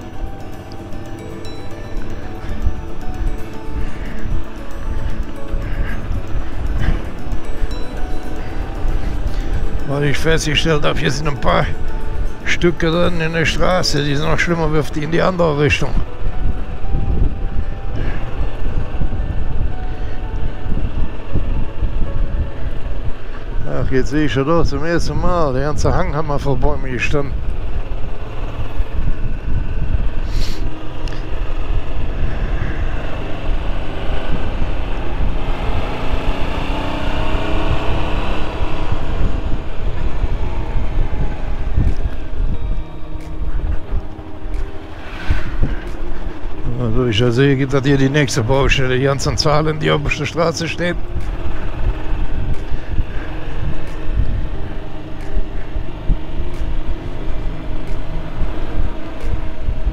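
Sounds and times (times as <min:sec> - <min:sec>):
wind rush: 0:00.0 - 0:26.1, 0:27.2 - 0:59.9
motorcycle engine at speed: 0:16.0 - 0:47.2, 0:47.9 - 0:59.9.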